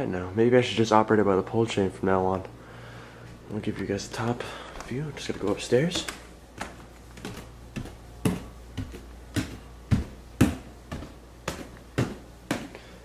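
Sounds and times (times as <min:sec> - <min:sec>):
footsteps climbing stairs: 0:03.7 - 0:13.0.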